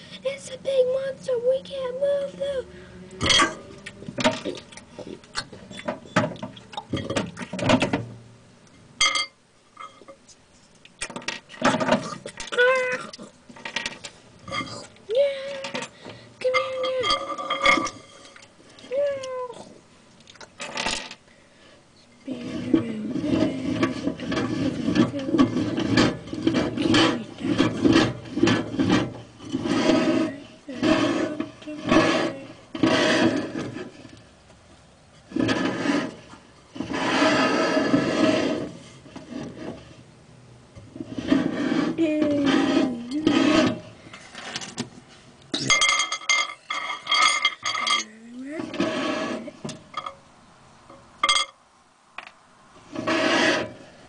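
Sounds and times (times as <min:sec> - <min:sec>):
toys knocking and clattering: 0:03.2 - 0:08.2, 0:11.0 - 0:18.4.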